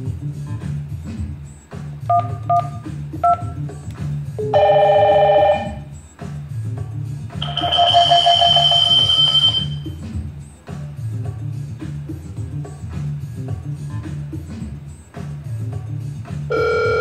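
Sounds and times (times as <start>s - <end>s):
background music: 0.0s - 17.0s
phone keypad beeps: 2.1s - 3.5s, 7.4s - 9.9s
incoming call ringtone: 2.1s - 3.6s, 4.4s - 5.9s, 7.4s - 10.0s, 16.5s - 17.0s.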